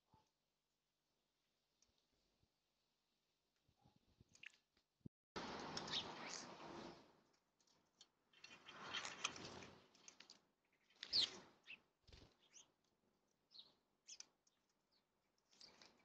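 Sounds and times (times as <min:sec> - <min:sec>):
sparrows chirping: 0:05.4 - 0:07.2, 0:08.0 - 0:16.0
birds' wings fluttering: 0:08.4 - 0:12.7.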